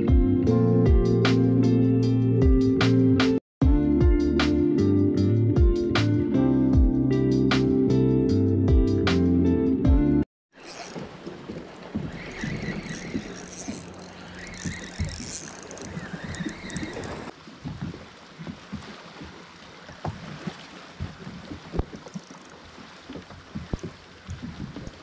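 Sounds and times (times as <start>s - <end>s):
water slapping kayak hull: 10.5s - 25.0s
knocks and clicks of rod gear: 10.6s - 17.3s, 21.7s - 22.6s.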